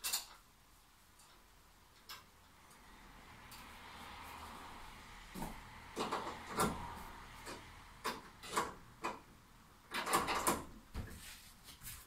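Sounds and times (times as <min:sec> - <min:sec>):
hands scraping bed frame parts: 0:09.9 - 0:12.0.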